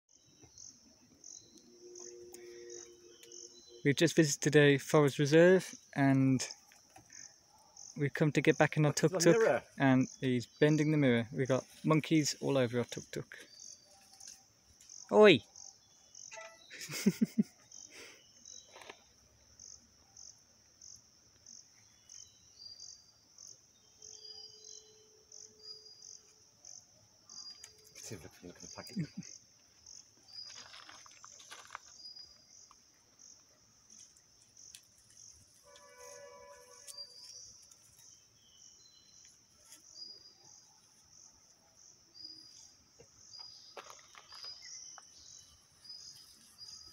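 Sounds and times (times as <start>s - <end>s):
insects chirping: 0.1s - 46.9s
short vocal sounds: 9.1s - 9.7s
rustling: 30.3s - 32.0s.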